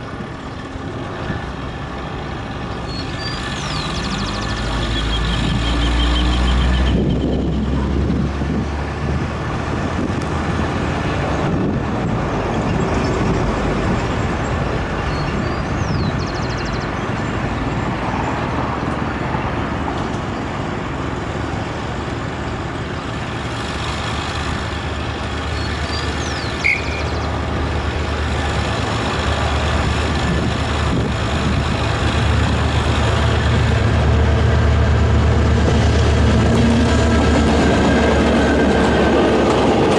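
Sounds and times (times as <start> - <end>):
locomotive engine drone: 0.0 - 39.9
steady rushing noise: 15.7 - 39.9.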